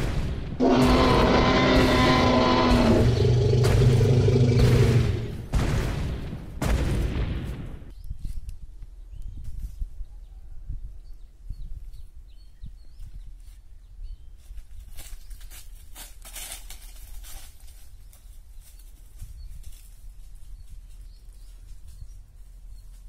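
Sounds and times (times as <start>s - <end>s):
wind rumble on microphone: 7.4s - 16.0s, 17.2s - 23.0s
dry rustling and crackling: 14.4s - 23.0s.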